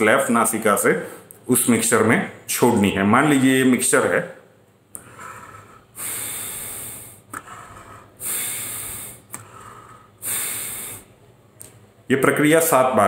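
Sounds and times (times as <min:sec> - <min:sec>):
man breathing forcefully through nose: 0:05.0 - 0:11.3.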